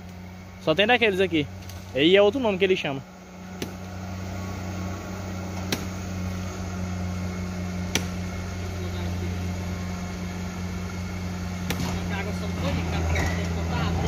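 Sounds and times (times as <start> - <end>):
tractor diesel engine droning: 0.0 - 14.0.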